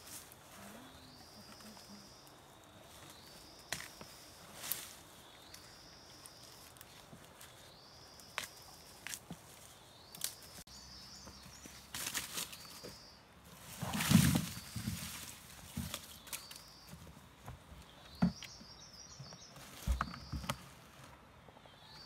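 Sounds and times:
dry leaves crackling underfoot: 0.0 - 17.4.

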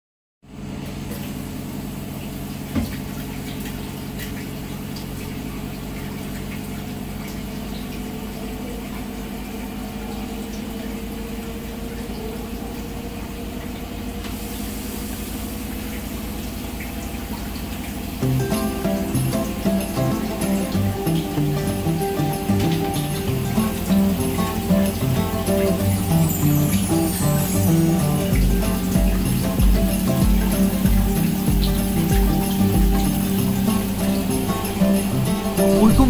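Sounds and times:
low hum: 0.6 - 36.0
shower spray on tiled wall: 14.2 - 36.0.

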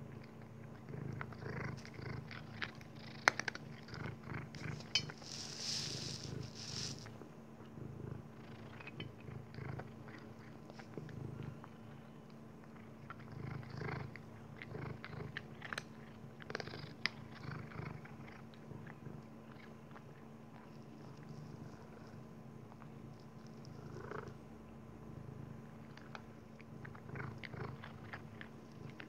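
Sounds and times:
cat purring: 0.0 - 29.0
cat crunching dry kibble: 0.1 - 7.1, 25.8 - 29.0.

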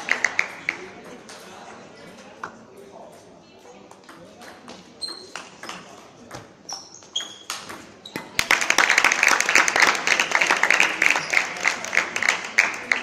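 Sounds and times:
crowd clapping and applause: 0.0 - 0.8, 8.4 - 13.0
shoe squeaks: 5.0 - 5.4, 6.6 - 8.4.

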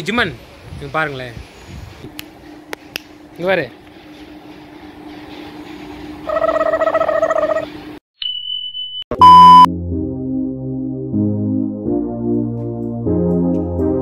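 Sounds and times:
thin high beep: 8.2 - 9.7
loud electronic beep: 8.3 - 9.7
keyboard music: 9.1 - 14.0.

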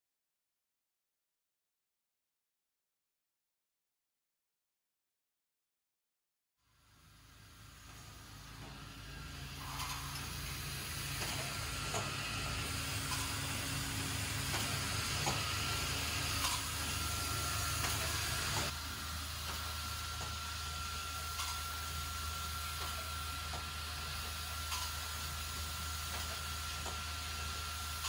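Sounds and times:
machine hiss: 6.9 - 28.0
bowl feeders humming: 7.1 - 28.0.

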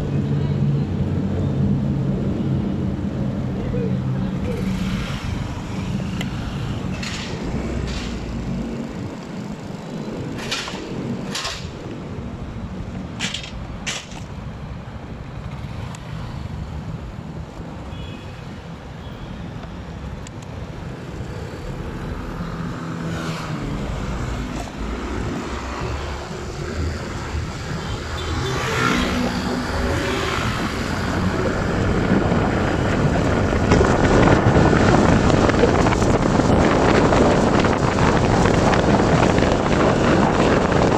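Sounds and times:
vehicle engine: 0.0 - 14.4
traffic noise: 0.0 - 40.9
wind on microphone: 29.0 - 40.9.

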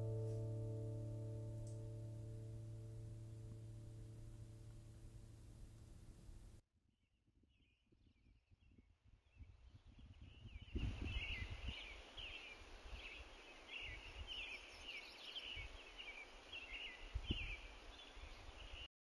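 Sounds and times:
hiss and low rumble: 0.0 - 6.6.

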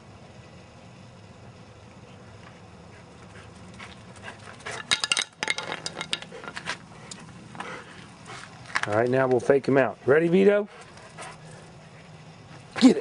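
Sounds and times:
steady low hum: 0.0 - 13.0
dog collar tags jingling: 4.7 - 6.6.

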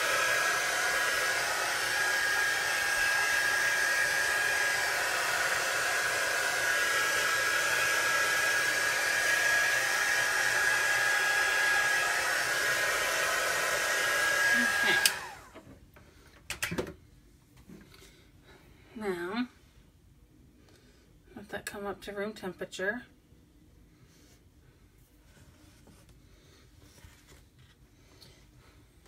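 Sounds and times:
hot-air dryer blowing: 0.0 - 15.6.

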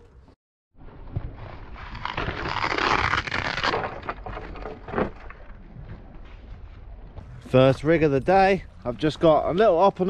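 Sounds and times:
hook-and-loop strap tearing: 2.0 - 3.9.

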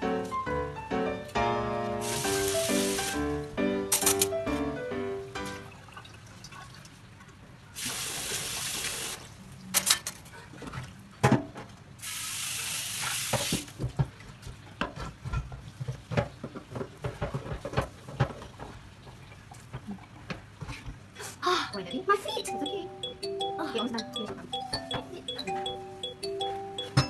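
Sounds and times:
tap water running into pan: 2.0 - 3.2, 12.0 - 13.8.

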